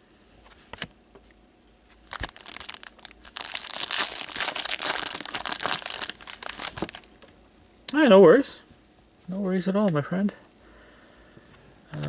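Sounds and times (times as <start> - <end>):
foil wrapper tearing and crinkling: 2.0 - 7.1.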